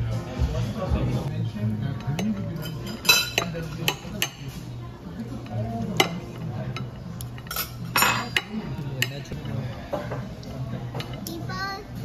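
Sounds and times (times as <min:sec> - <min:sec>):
cutlery clinking on ceramic plate: 0:02.1 - 0:04.6, 0:06.0 - 0:10.3.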